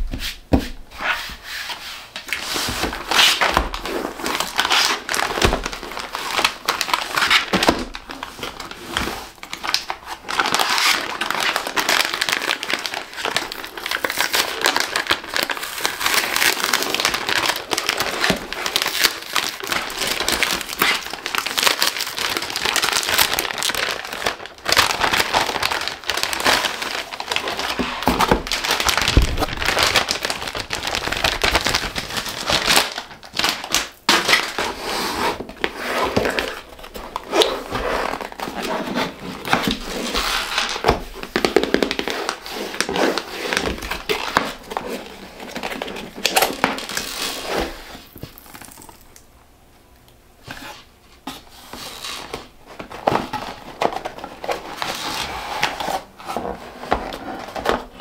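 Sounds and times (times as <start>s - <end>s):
plastic mailer bag crinkling: 2.3s - 34.7s, 35.3s - 49.2s.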